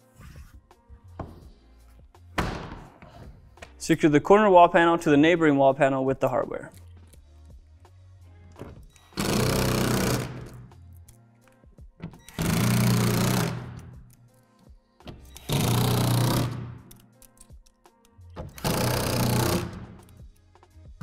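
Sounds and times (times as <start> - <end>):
cordless drill driving screws: 9.1 - 10.6, 15.4 - 16.6, 18.5 - 19.8.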